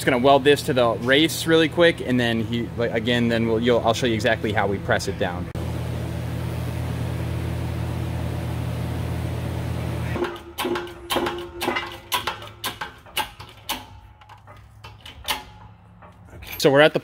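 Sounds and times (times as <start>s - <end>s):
press clicking and knocking: 10.2s - 16.2s.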